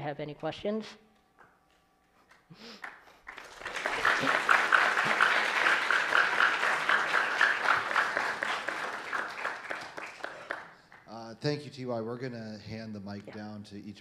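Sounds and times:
audience applauding: 0:02.6 - 0:11.3.

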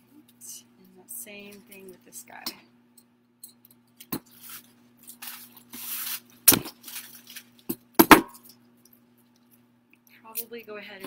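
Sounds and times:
plastic picks rustling: 0:04.2 - 0:07.7.

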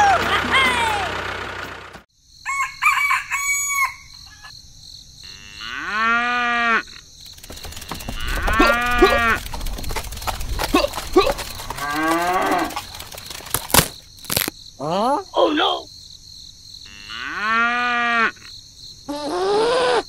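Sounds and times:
cow mooing: 0:05.3 - 0:07.0, 0:08.0 - 0:09.5, 0:10.7 - 0:12.9, 0:16.9 - 0:18.5.

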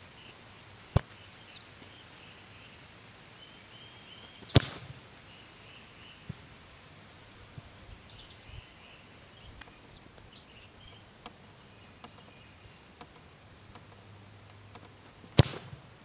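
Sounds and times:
bird chirps: 0:03.4 - 0:06.3, 0:08.0 - 0:13.0
soft ticks: 0:10.9 - 0:15.2.

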